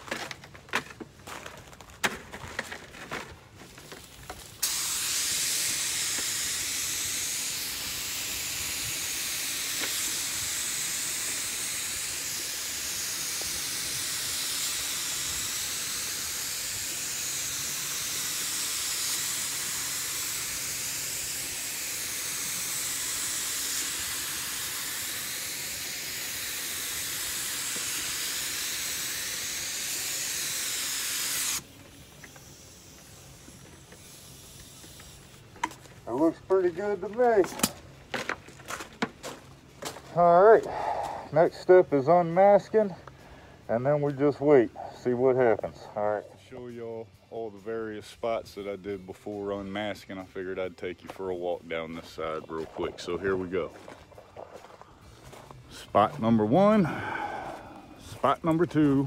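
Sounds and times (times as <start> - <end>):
paint spray gun hissing: 4.0 - 38.3, 55.9 - 59.0.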